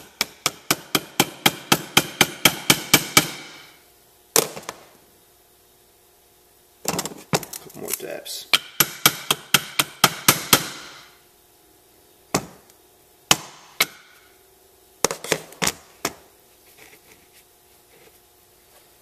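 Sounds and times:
hammer tapping on metal: 0:00.0 - 0:03.7.

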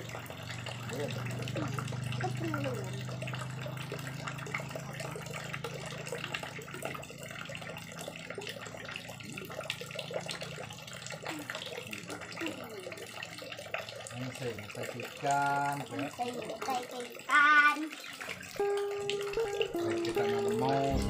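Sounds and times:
water running steadily: 0:00.0 - 0:21.0
low hum: 0:20.6 - 0:21.0.

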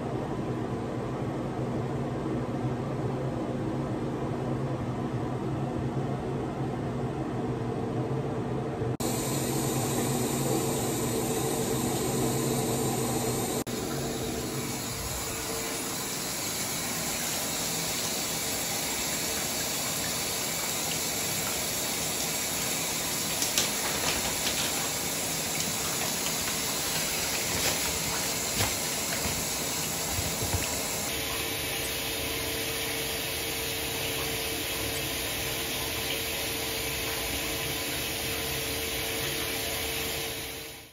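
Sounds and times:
water running into bathtub: 0:09.0 - 0:40.9.

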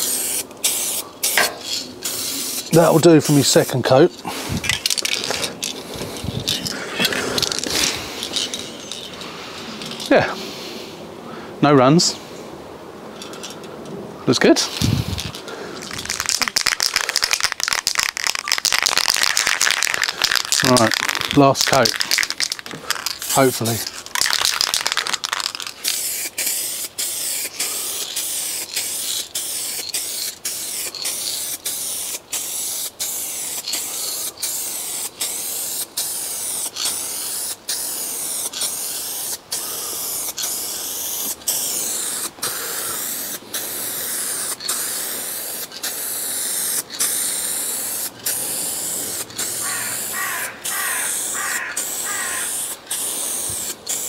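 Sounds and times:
aerosol spray can hissing: 0:00.0 - 0:03.6, 0:14.8 - 0:54.0.

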